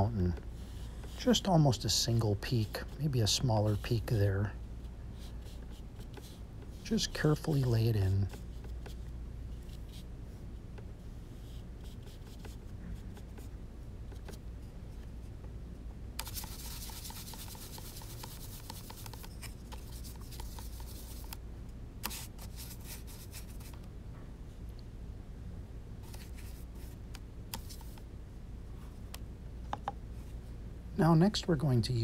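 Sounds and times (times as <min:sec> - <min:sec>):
brush scratching: 0:01.0 - 0:04.5, 0:05.2 - 0:09.0, 0:16.2 - 0:21.4
brush scrubbing on palette: 0:05.2 - 0:08.4, 0:16.2 - 0:21.4.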